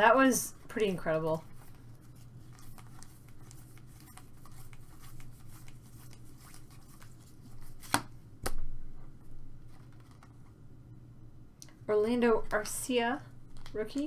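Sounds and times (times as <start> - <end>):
cards sliding and ticking: 1.4 - 8.1
card edges snapping: 7.8 - 8.6.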